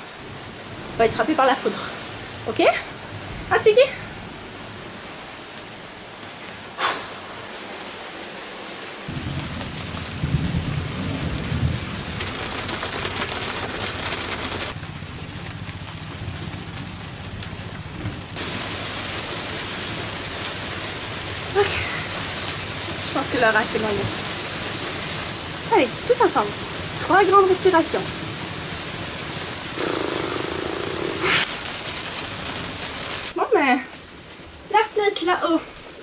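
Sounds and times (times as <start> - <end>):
heavy rain hissing: 0.0 - 36.0
thunder cracking and rumbling: 9.1 - 33.4.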